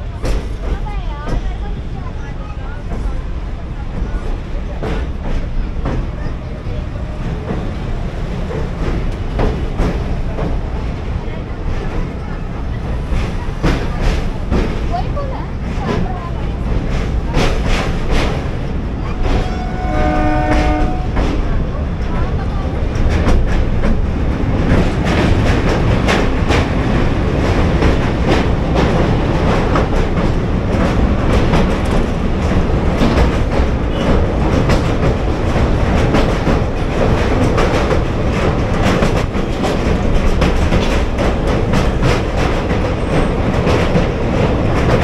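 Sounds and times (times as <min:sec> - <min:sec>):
train rumbling: 0:00.0 - 0:45.0
wheels clattering over rails: 0:03.8 - 0:45.0.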